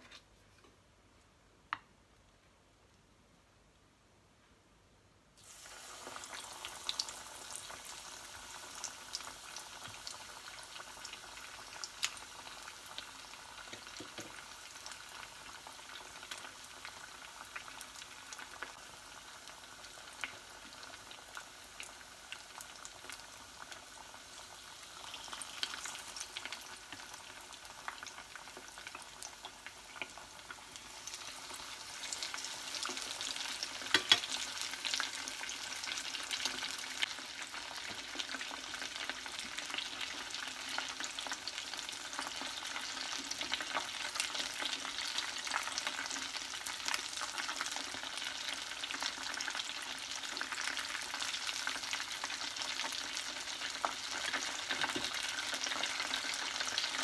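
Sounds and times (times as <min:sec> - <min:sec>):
chicken sizzling in hot oil: 0:05.4 - 0:57.0
oil popping and crackling: 0:31.4 - 0:34.9.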